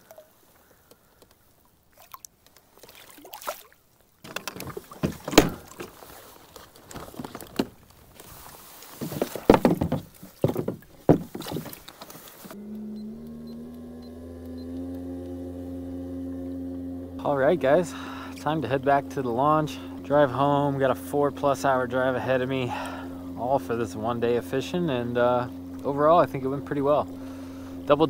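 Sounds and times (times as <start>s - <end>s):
water splashing: 1.6s - 12.6s
knocks and clunks of gear: 4.2s - 12.6s
steady multi-tone hum: 12.5s - 28.0s.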